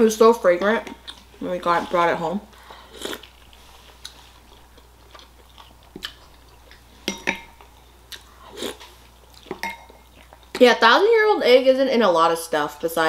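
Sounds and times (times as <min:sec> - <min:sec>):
spoon clinking against bowl: 0:09.6 - 0:10.0.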